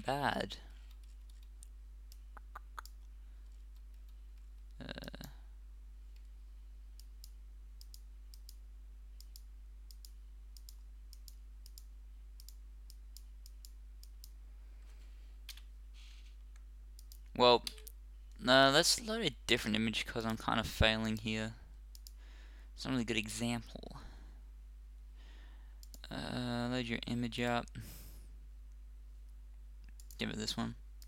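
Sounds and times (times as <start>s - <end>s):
low electrical hum: 0.0s - 31.0s
computer mouse clicks: 0.8s - 5.4s, 7.0s - 8.6s, 9.2s - 14.4s, 16.6s - 18.0s, 21.9s - 22.2s, 25.8s - 26.1s, 29.8s - 30.3s.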